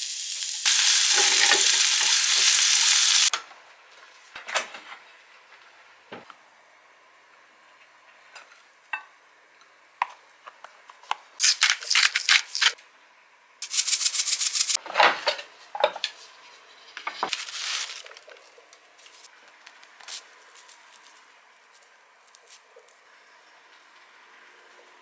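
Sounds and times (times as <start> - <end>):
seasoning shaker rattling: 0.0 - 3.3, 11.4 - 12.8, 13.6 - 14.8.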